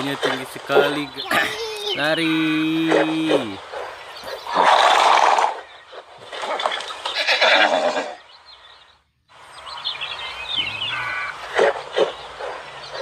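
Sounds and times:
horse whinny: 0:04.5 - 0:05.7, 0:07.2 - 0:08.2.

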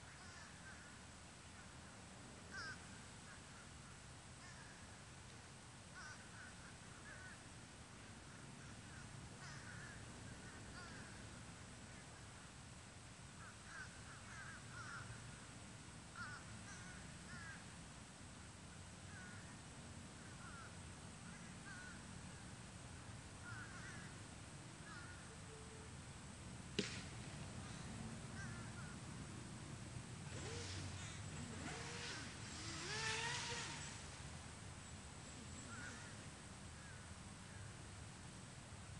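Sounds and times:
birds chirping: 0:30.3 - 0:36.2.

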